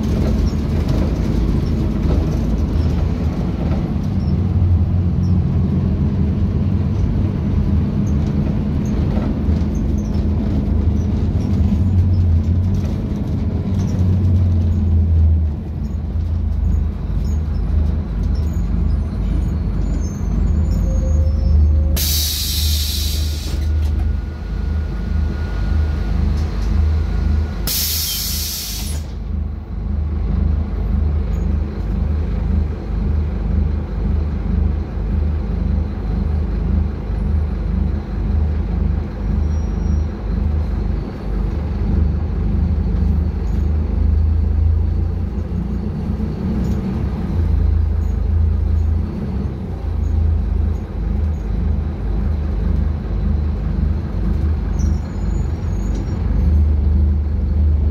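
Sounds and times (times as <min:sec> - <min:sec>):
bus diesel engine droning: 0:00.0 - 0:57.9
compressed air hissing: 0:22.0 - 0:23.6, 0:27.7 - 0:29.1.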